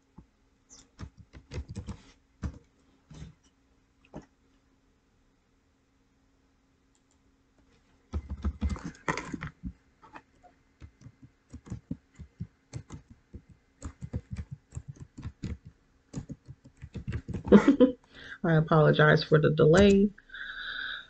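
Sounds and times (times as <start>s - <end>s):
typing on computer keyboard: 0.8s - 2.6s, 8.2s - 9.5s, 10.8s - 17.6s.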